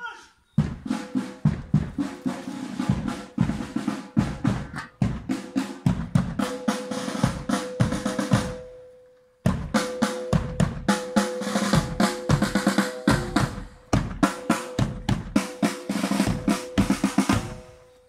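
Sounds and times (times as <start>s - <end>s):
bass drum: 0.6s - 2.2s, 2.8s - 6.6s, 11.7s - 15.6s
marching snare drum: 0.6s - 8.6s, 9.5s - 17.8s.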